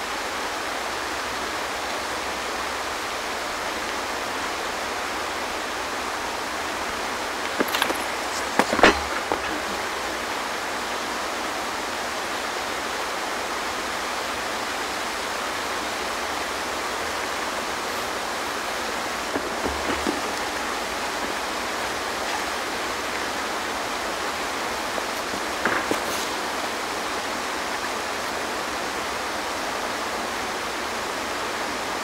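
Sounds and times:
steady hiss: 0.0 - 32.0
sharp knock and rustle: 7.4 - 9.9, 19.4 - 21.4, 25.1 - 26.6
faint knocks: 19.4 - 23.4.

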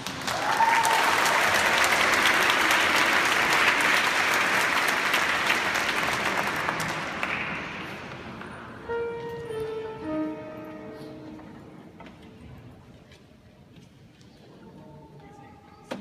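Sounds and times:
audience applauding: 0.0 - 8.4
held musical notes: 8.4 - 12.8.

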